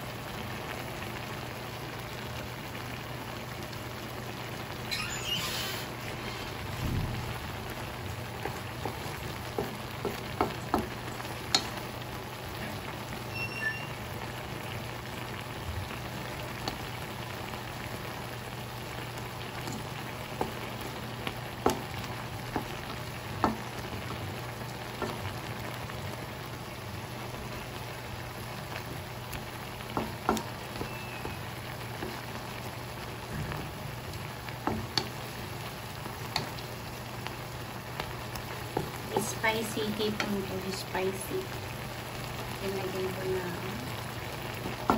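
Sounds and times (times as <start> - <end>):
shrimp sizzling in a wok: 0.0 - 44.9
wooden spatula scraping a pan: 5.6 - 6.8.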